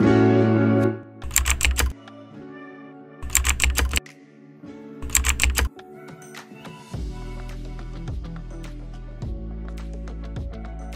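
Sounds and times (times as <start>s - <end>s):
soft background music: 0.0s - 10.9s
rapid keyboard key clicks: 1.2s - 1.9s, 3.2s - 4.0s, 5.0s - 5.7s.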